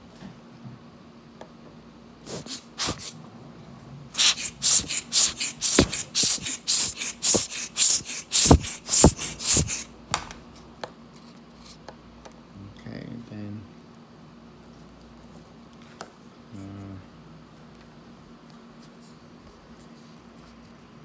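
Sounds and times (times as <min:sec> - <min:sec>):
dull handling thumps: 0:08.4 - 0:10.2.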